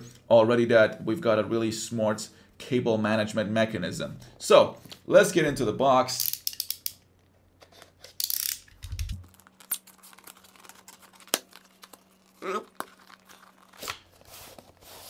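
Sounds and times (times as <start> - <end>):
cardboard and paper tearing: 9.3 - 15.0.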